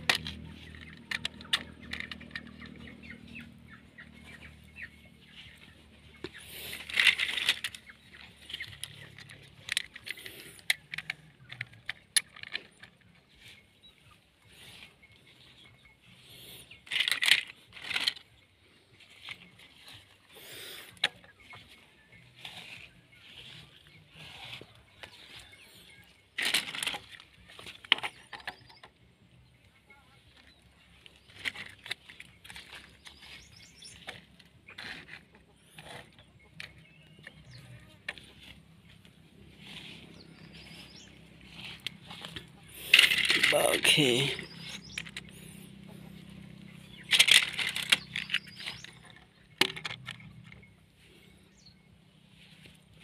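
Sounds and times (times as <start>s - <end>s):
plastic toy rattle: 0.0s - 4.6s, 5.2s - 13.6s, 16.2s - 18.4s, 22.4s - 28.9s, 30.3s - 50.7s.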